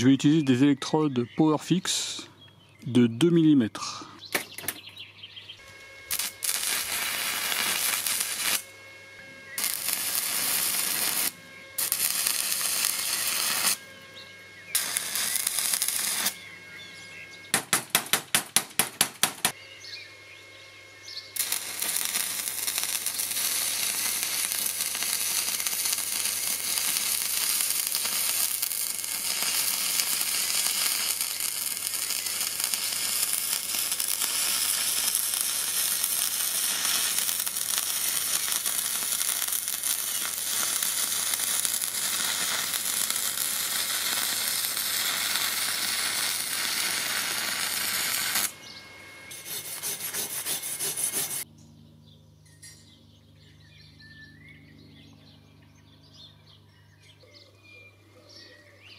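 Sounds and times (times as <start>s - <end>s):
welding arc crackling: 5.6s - 8.8s, 9.5s - 13.9s, 14.7s - 16.5s, 21.3s - 51.5s
wire brush scraping metal: 49.3s - 51.4s.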